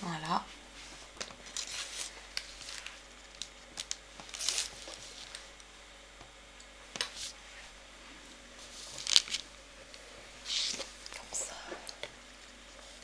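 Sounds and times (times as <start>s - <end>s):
paper crinkling: 1.1s - 5.6s, 8.6s - 9.5s.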